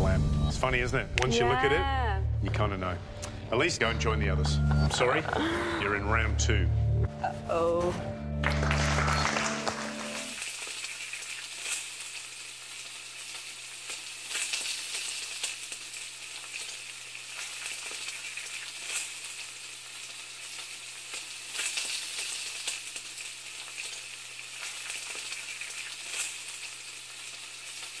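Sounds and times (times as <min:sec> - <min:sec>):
food sizzling in hot pan: 0:09.4 - 0:28.0
crackles and pops of frying: 0:10.0 - 0:28.0.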